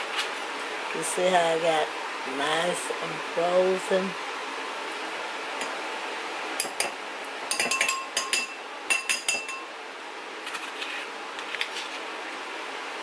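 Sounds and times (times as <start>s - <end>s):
metal spoon clinking against glass: 7.5s - 9.7s.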